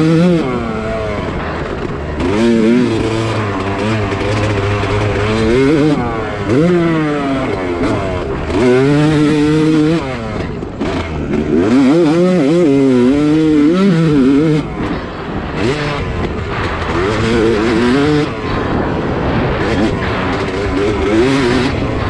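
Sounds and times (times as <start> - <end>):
dirt bike engine revving: 0.0 - 22.0.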